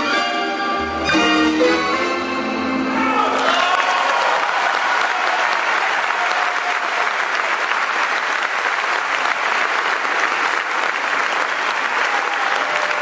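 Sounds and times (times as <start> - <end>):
audience applauding: 3.2 - 13.0.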